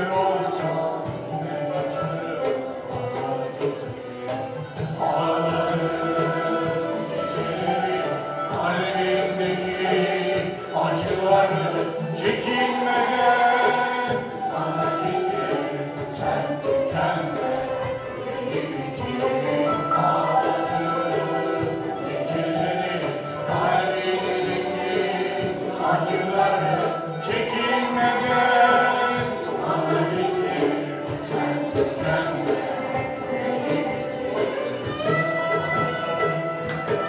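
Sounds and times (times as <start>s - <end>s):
plucked oud: 0.0s - 37.0s
voices singing a flowing melody: 0.0s - 37.0s.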